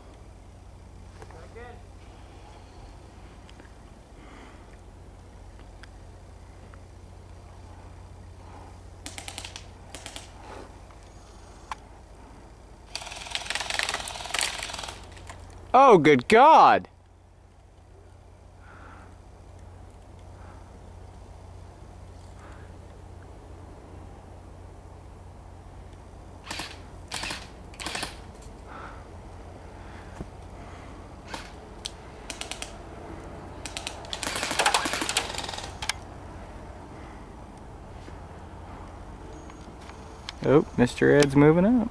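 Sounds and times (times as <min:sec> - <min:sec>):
airsoft guns firing bursts: 0:09.0 - 0:10.4, 0:12.9 - 0:15.2, 0:26.4 - 0:28.3, 0:32.2 - 0:32.8, 0:33.6 - 0:35.9.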